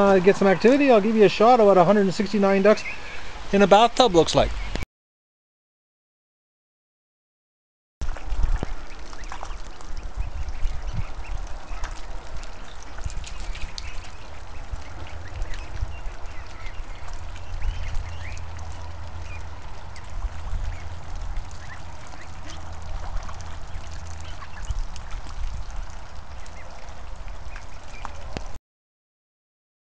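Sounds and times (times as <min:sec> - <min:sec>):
ducklings calling: 0:00.0 - 0:04.8, 0:08.0 - 0:28.6
steady low rumble: 0:08.0 - 0:28.6.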